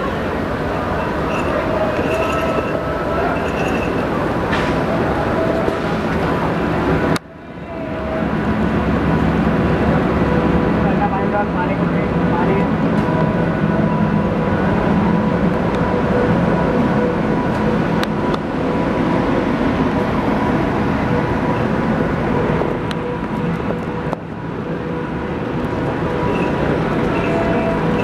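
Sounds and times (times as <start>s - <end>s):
constant hum: 0.0s - 28.0s
locomotive rumble: 0.0s - 28.0s.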